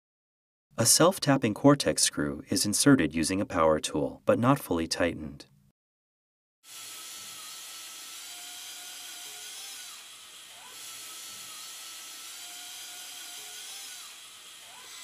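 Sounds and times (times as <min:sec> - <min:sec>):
drill motor whining: 0:06.6 - 0:15.0.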